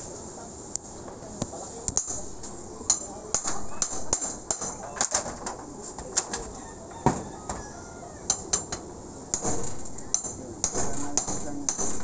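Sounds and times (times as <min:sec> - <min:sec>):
hammer prying nails from metal: 0:02.0 - 0:05.3, 0:08.3 - 0:12.0.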